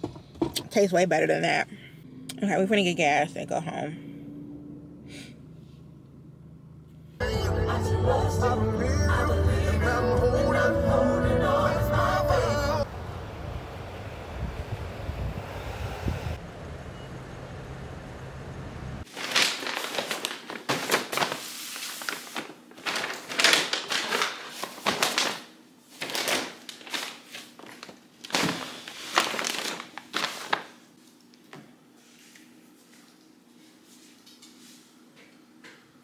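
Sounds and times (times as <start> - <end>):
low steady rumble: 1.6 - 19.1
paper bags rustling: 19.1 - 31.1.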